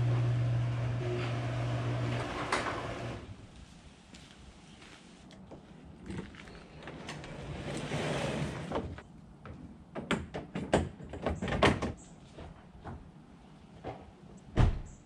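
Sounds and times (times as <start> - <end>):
scraping slide: 7.0 - 9.0.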